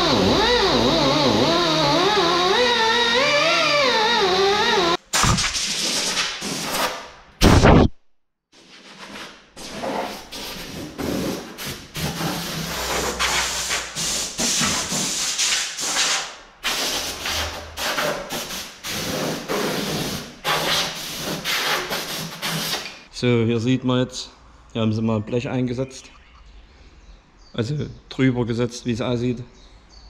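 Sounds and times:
rough sanding on sheet metal: 0:08.8 - 0:22.8.

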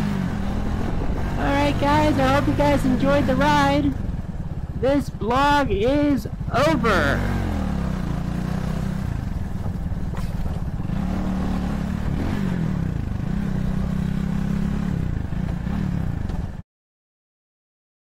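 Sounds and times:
motorcycle engine running: 0:00.0 - 0:16.6
wind rushing past microphone: 0:00.1 - 0:02.6.

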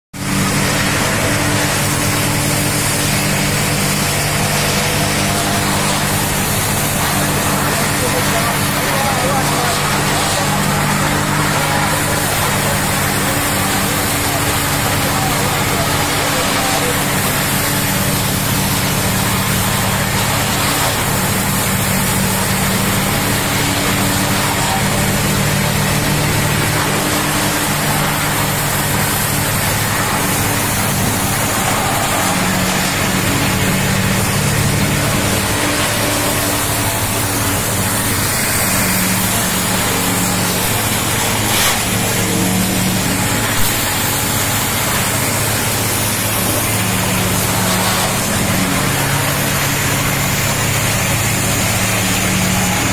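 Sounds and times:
wood crushing machines running: 0:00.2 - 0:52.9.

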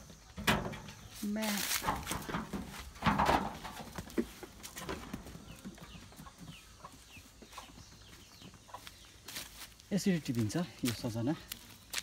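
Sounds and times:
chickens chirping: 0:00.0 - 0:12.0.

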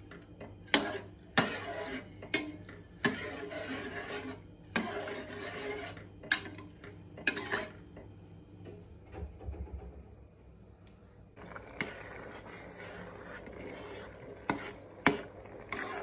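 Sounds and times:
spoon stirring rice in saucepan: 0:00.0 - 0:08.2, 0:11.4 - 0:16.0.

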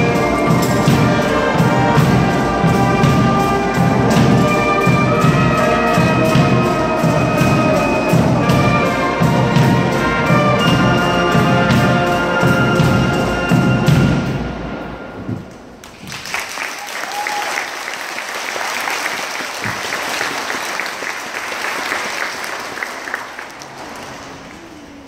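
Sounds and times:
brass marching band playing: 0:00.0 - 0:16.4.

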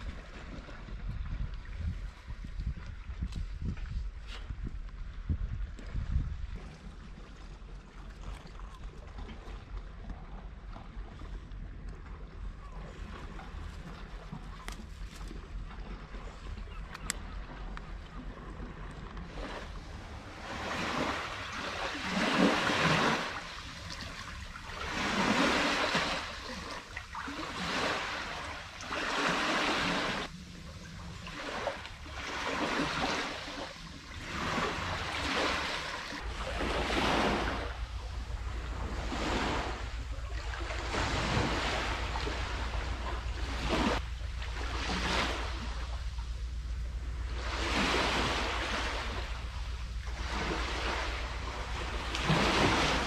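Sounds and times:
sea waves washing onto beach: 0:19.3 - 0:46.4, 0:47.0 - 0:53.0.

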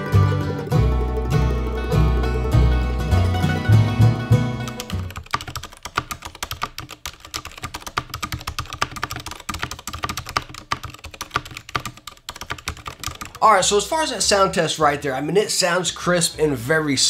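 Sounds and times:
background music: 0:00.0 - 0:05.2
fast mechanical keyboard typing: 0:04.6 - 0:13.8.

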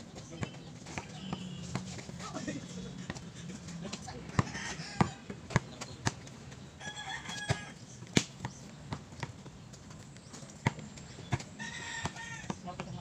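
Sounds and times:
basketball bouncing on concrete: 0:00.2 - 0:02.2, 0:04.3 - 0:06.6, 0:07.3 - 0:13.0.

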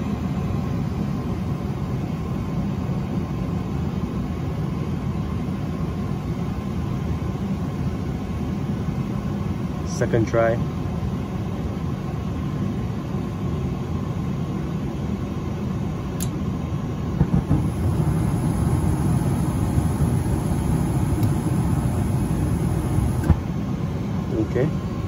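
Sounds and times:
gas furnace rumbling: 0:16.0 - 0:25.0
furnace control click: 0:18.4 - 0:23.4.

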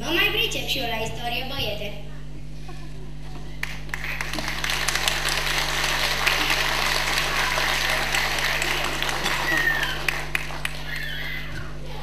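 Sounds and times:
audience applauding: 0:03.6 - 0:11.3.

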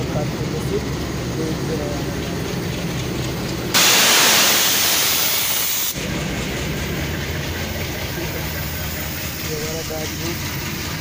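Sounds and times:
diesel locomotive idling: 0:00.0 - 0:11.0
compressed air hissing: 0:03.7 - 0:06.0.

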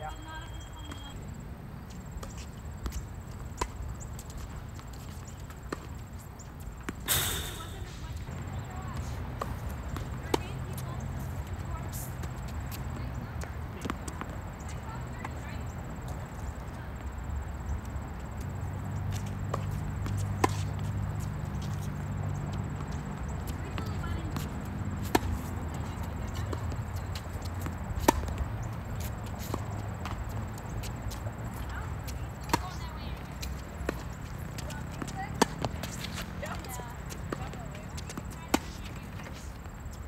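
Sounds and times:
tennis ball hit with rackets: 0:06.9 - 0:14.4, 0:19.1 - 0:30.2, 0:32.4 - 0:39.3
ball bouncing on hard court: 0:07.1 - 0:16.1, 0:18.4 - 0:30.5, 0:31.1 - 0:39.4.

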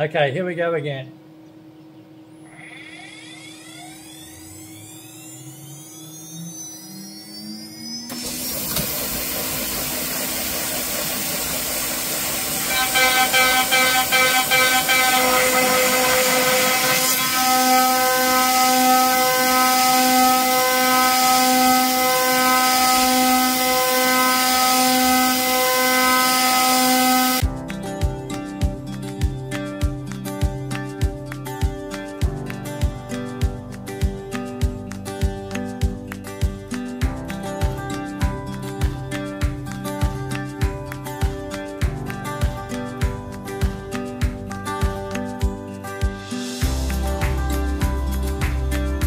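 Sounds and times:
router spindle whine: 0:02.4 - 0:27.4
end mill cutting aluminium: 0:04.0 - 0:27.4.

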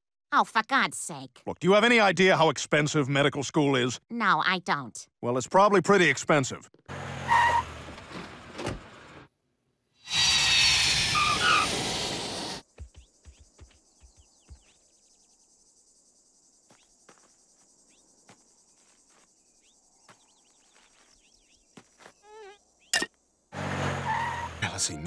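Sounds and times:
faint insect buzzing: 0:12.6 - 0:22.9
bird chirps: 0:12.6 - 0:23.1.

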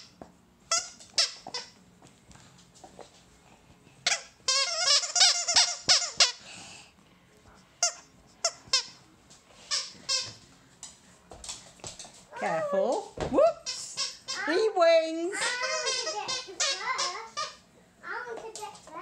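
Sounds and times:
dog toy squeaking: 0:00.7 - 0:01.7, 0:04.1 - 0:06.4, 0:15.4 - 0:17.6.

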